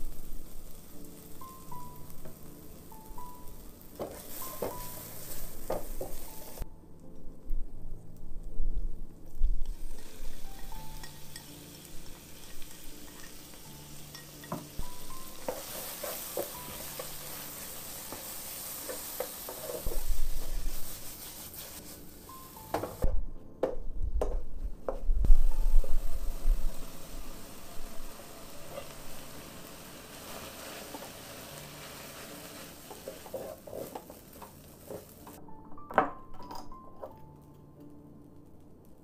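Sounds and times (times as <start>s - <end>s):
food sizzling in hot oil: 0.0s - 6.6s, 9.6s - 23.0s, 25.3s - 35.4s
wooden spoon scraping a wok: 4.0s - 6.6s, 15.3s - 22.2s, 27.3s - 35.4s.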